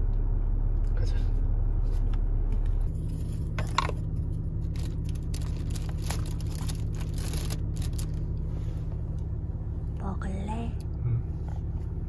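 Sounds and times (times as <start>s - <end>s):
car cabin road rumble: 0.0s - 12.0s
rustling: 2.9s - 9.0s.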